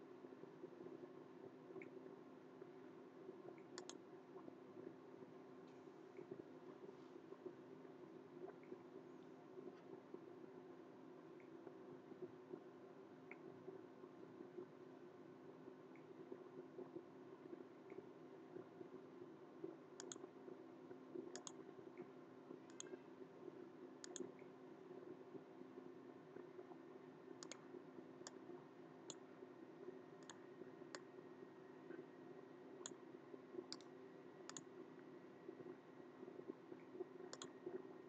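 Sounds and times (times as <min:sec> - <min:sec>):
low room hum: 0:00.0 - 0:38.0
computer mouse clicks: 0:03.6 - 0:04.0, 0:20.0 - 0:20.2, 0:21.3 - 0:21.6, 0:22.7 - 0:23.0, 0:24.0 - 0:24.4, 0:27.4 - 0:27.6, 0:30.2 - 0:31.1, 0:33.7 - 0:33.9, 0:34.5 - 0:34.7, 0:37.3 - 0:37.6.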